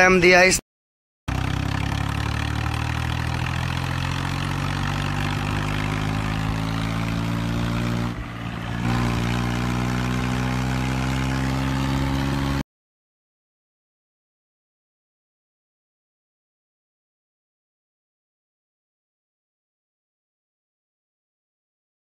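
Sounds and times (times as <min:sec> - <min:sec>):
tractor diesel engine running: 0:01.3 - 0:12.6.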